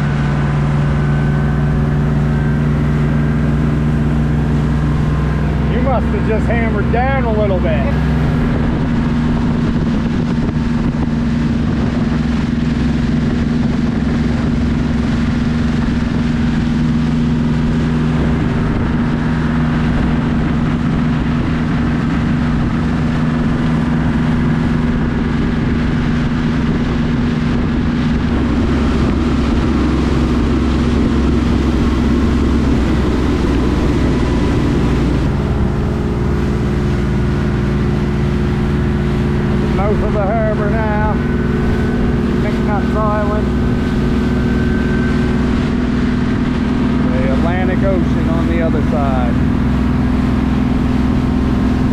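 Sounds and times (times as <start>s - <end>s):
boat engine running: 0.0s - 51.9s
water noise: 0.0s - 51.9s
wind noise: 0.0s - 51.9s.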